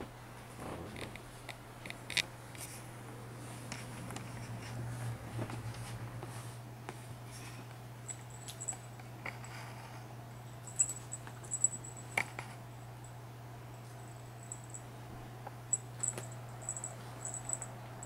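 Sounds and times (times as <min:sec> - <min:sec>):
steady low hum: 0:00.0 - 0:18.0
cat rustling and scratching: 0:00.5 - 0:12.6.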